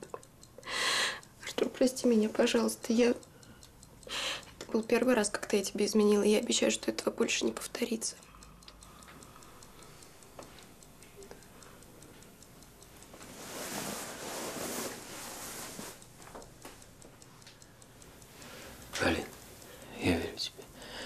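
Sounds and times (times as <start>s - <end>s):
clock ticking: 0.0s - 21.0s
bedclothes rustling: 13.1s - 16.0s.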